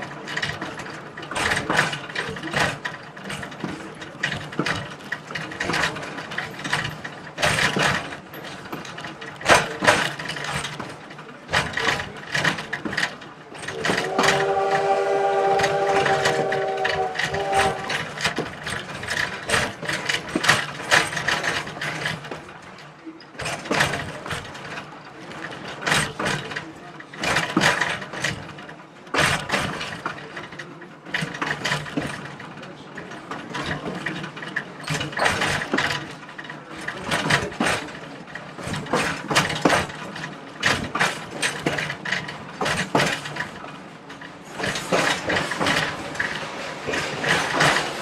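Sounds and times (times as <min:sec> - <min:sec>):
train clattering over track: 0:00.0 - 0:48.0
locomotive whistle blast: 0:13.8 - 0:18.0.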